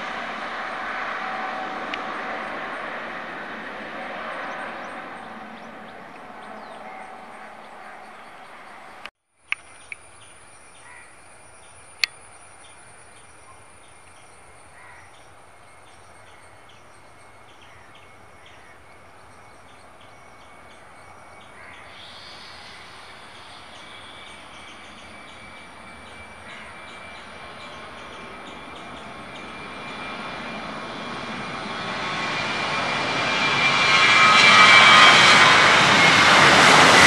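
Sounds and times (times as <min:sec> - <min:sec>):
distant jet engines whining: 0:00.0 - 0:37.0
bird calls: 0:04.0 - 0:30.1.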